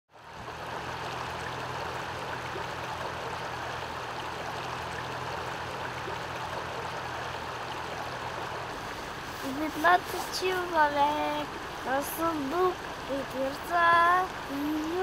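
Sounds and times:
faint low hum: 0.2 - 15.0
river water rushing: 0.2 - 15.0.

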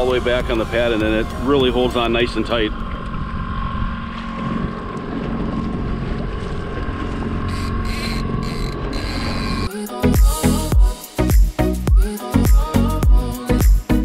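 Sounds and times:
outboard motor running: 0.0 - 10.8.

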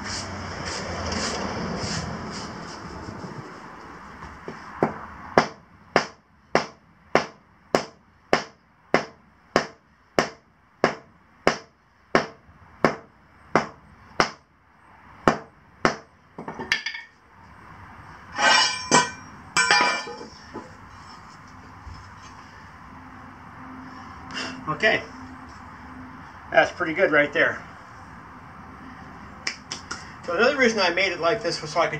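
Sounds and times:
short scraping sounds: 0.0 - 3.4, 18.3 - 19.2
sledgehammer striking: 4.8 - 14.4, 15.3 - 17.1, 18.3 - 20.3.

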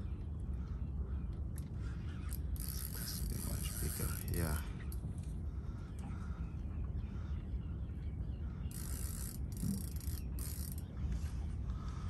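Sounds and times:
low steady rumble: 0.0 - 12.0
fishing reel drag ratcheting: 2.3 - 5.0, 8.7 - 10.9.

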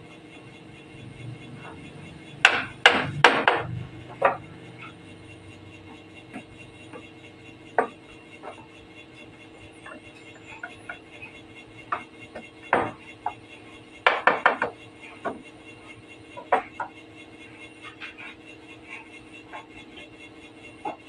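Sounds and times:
wooden knocks and clicks: 14.1 - 15.4.

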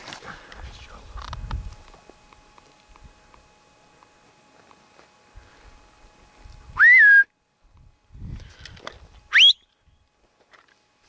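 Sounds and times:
person whistling: 6.8 - 7.3, 9.3 - 9.7.

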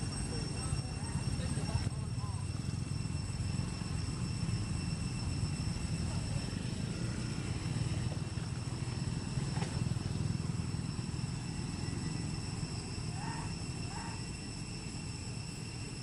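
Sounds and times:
high-pitched drone: 0.0 - 16.0.

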